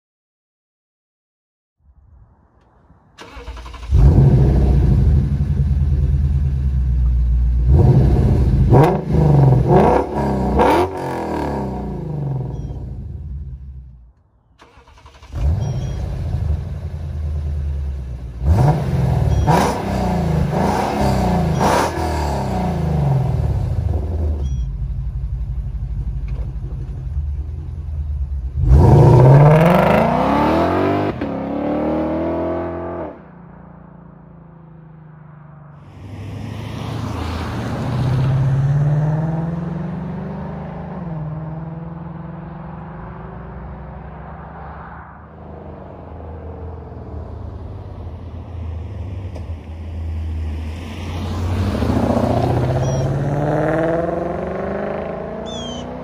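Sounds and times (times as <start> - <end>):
car accelerating away: 3.2 - 12.7, 14.6 - 24.4, 28.4 - 33.3, 36.0 - 56.0
car engine starting and revving: 3.2 - 14.0, 14.6 - 33.3, 36.0 - 44.7, 45.3 - 56.0.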